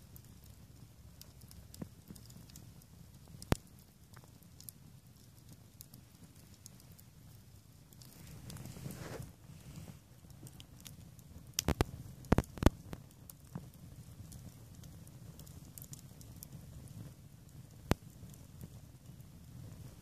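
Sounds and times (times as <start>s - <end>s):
burning logs popping: 0.0s - 20.0s
fire crackling: 0.0s - 20.0s
low rumble of flames: 0.0s - 20.0s.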